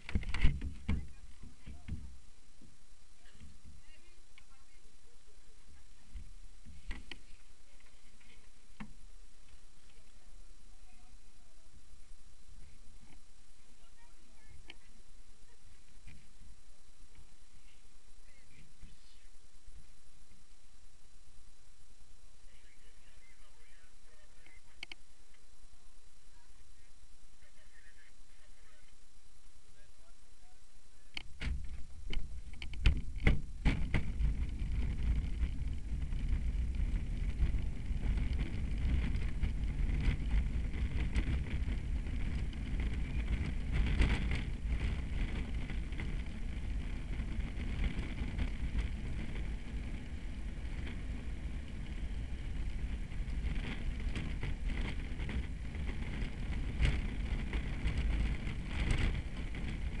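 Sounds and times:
cart knocks and rattles: 0.0 - 2.2, 31.4 - 60.0
wind on microphone: 0.0 - 29.2, 30.9 - 60.0
wheels rumbling on tarmac: 0.0 - 60.0.

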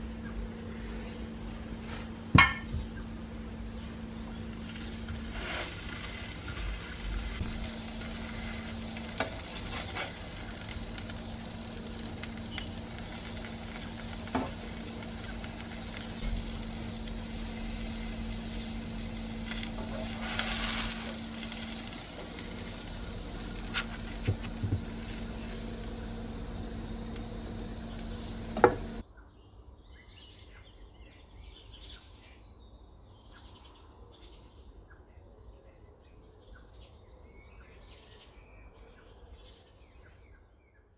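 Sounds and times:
low hum: 0.0 - 29.0
tortilla sizzling on griddle: 3.7 - 29.0.

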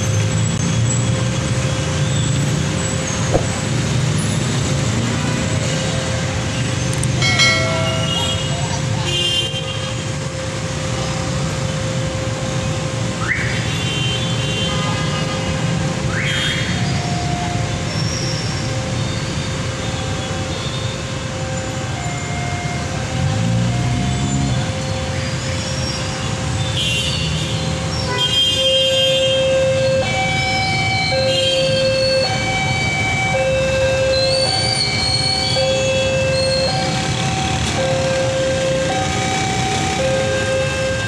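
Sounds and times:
vehicle engine: 0.0 - 9.3
road traffic: 0.0 - 41.0
steady high tone: 7.2 - 9.2.

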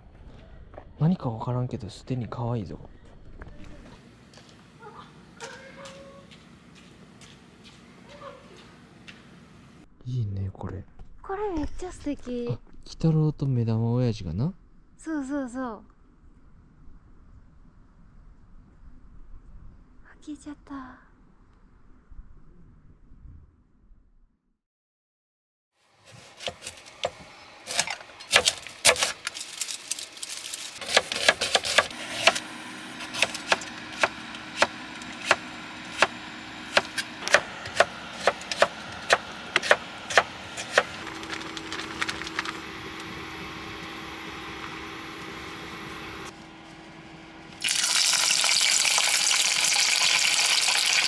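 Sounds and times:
steady hum: 25.9 - 49.5
knife chopping on cutting board: 26.2 - 29.2, 30.8 - 32.4, 33.0 - 40.9
fish sizzling in hot oil: 47.6 - 51.0.

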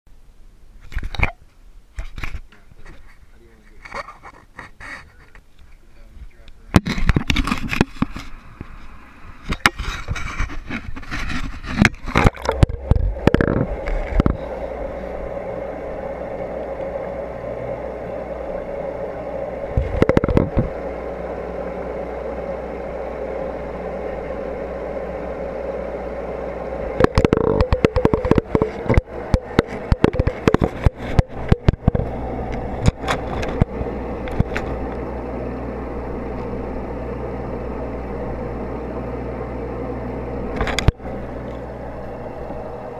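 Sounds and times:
aquarium equipment hum underwater: 0.1 - 42.9
camera knocking against glass: 27.0 - 32.1.

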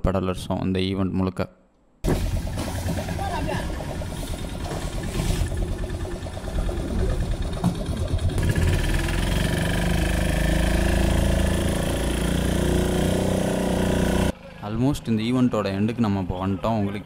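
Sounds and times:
outboard motor running: 2.0 - 14.5.

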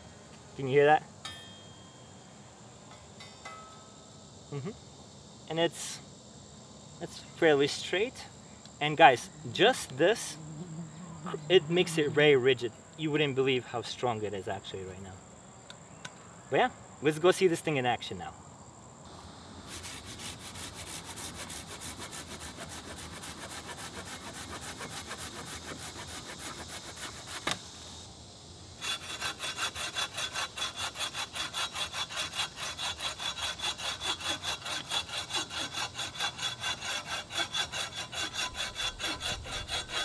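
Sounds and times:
buck saw sawing log: 19.7 - 27.6, 28.8 - 40.0
pruning saw cutting branch: 19.8 - 27.6, 28.8 - 40.0.

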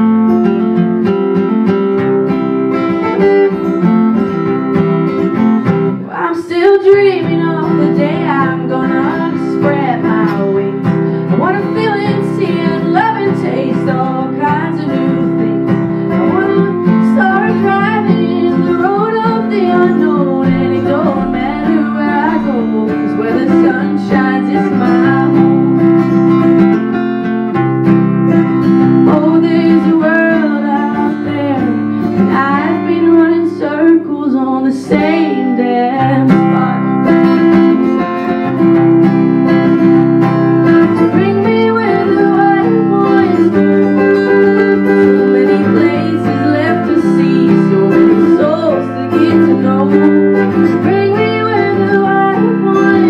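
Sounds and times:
acoustic guitar strumming: 0.0 - 53.0
woman singing: 5.3 - 26.4, 28.6 - 38.0, 40.6 - 53.0.

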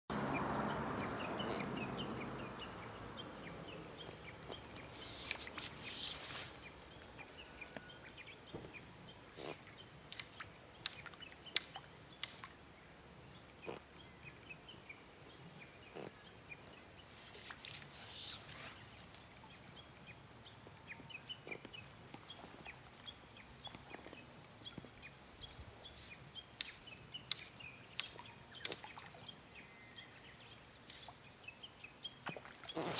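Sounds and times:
birds chirping: 0.1 - 32.9
hissing rustles: 4.8 - 7.0, 17.1 - 19.3
sharp clicks: 10.1 - 12.5, 26.6 - 28.8.

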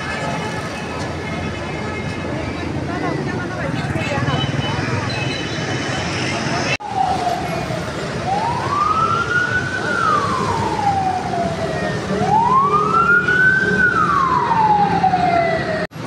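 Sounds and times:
street traffic: 0.0 - 16.0
siren wailing: 6.6 - 15.9.

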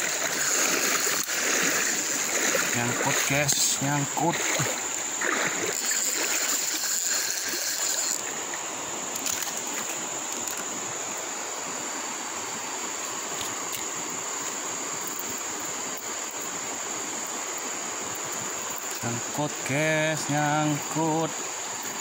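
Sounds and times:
high-pitched insect buzz: 0.0 - 22.0
river flowing: 0.0 - 22.0.

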